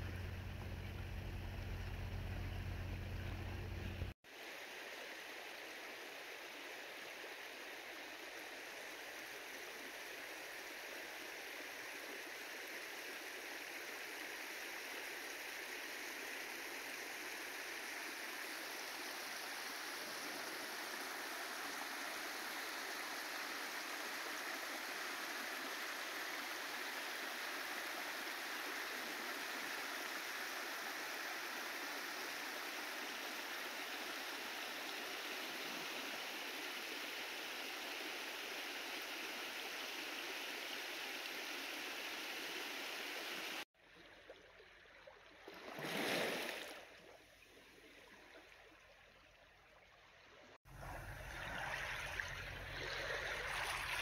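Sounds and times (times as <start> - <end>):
running water rushing: 0.0 - 54.0.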